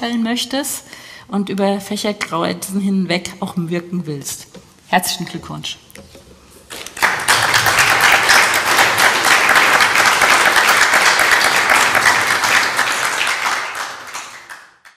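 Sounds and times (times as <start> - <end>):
audience applauding: 6.7 - 14.9.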